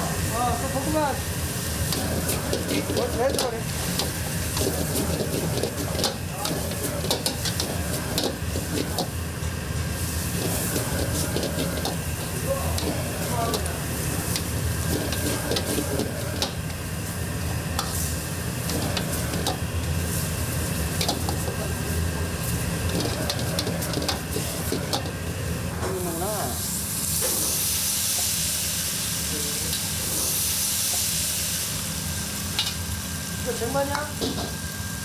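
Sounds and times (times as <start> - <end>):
food sizzling on hot surface: 0.0 - 35.0
steady low hum: 1.2 - 27.0.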